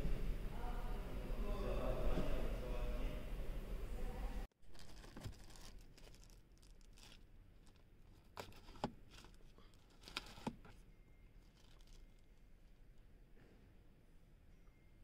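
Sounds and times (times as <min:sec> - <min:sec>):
plastic film crinkling: 0:04.6 - 0:10.8, 0:11.4 - 0:12.8.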